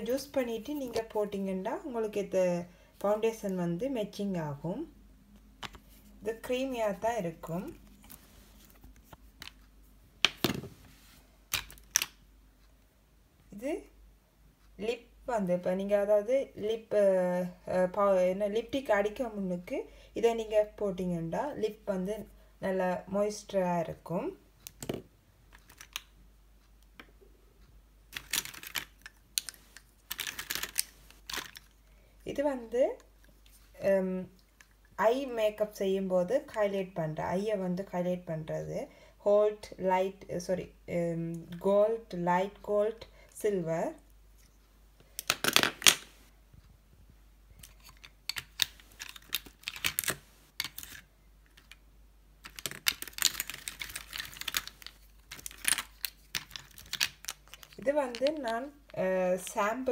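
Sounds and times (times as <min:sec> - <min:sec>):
plastic makeup cases clicking: 0:11.5 - 0:12.2, 0:28.1 - 0:31.7, 0:45.2 - 0:46.1, 0:47.6 - 0:51.8, 0:52.4 - 0:58.6
lipstick tubes clattering: 0:52.4 - 0:58.5.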